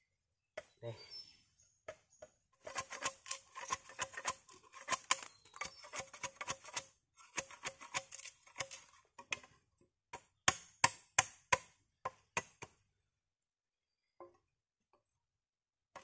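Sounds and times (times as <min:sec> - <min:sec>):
blade chopping bamboo: 0:02.6 - 0:09.5, 0:10.2 - 0:12.8.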